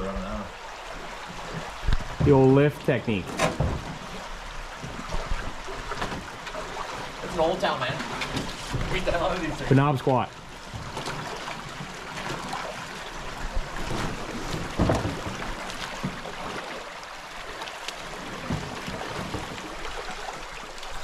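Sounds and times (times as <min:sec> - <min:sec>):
creek water running over rocks: 0:00.0 - 0:21.0
splashing of wading person: 0:00.6 - 0:21.0
dull thumps: 0:01.5 - 0:02.6.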